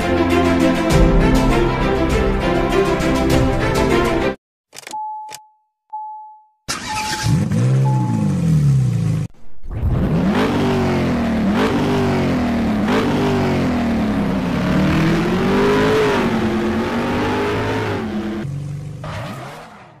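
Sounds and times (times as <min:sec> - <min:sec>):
car engine revving: 0:06.7 - 0:20.0.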